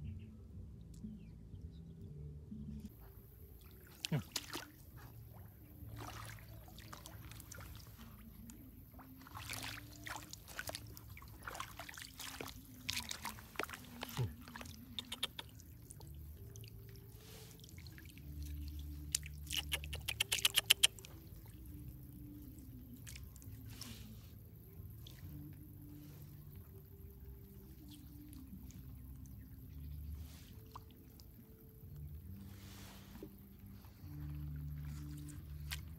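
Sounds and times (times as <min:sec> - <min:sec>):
hands splashing in muddy water: 0:03.7 - 0:05.2, 0:05.8 - 0:08.2, 0:09.0 - 0:24.3, 0:32.3 - 0:35.9
water dripping: 0:06.0 - 0:23.6.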